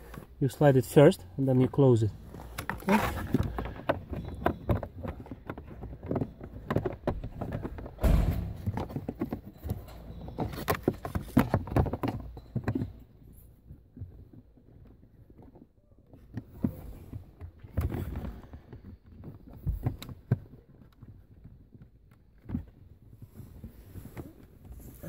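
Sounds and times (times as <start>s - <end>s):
plastic knocks clicks and scrapes: 2.2s - 25.0s
faint rustles: 22.6s - 25.0s.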